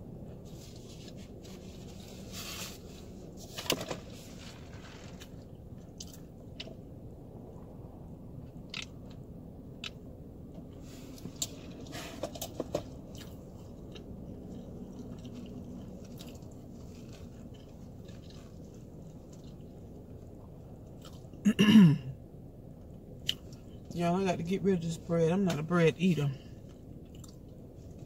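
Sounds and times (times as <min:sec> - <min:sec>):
steady low hum: 0:00.0 - 0:28.0
person chewing food: 0:05.8 - 0:06.8, 0:11.2 - 0:21.4, 0:26.7 - 0:28.0.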